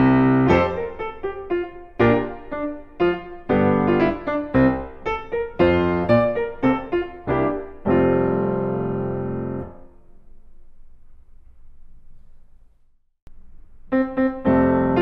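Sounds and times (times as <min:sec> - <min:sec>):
piano music: 0:00.0 - 0:10.2, 0:13.9 - 0:15.0
faint low background noise: 0:00.0 - 0:15.0.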